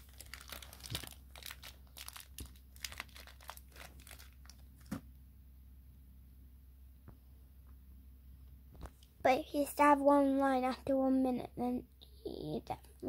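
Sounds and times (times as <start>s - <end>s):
cardboard box crinkling: 0.0s - 5.0s.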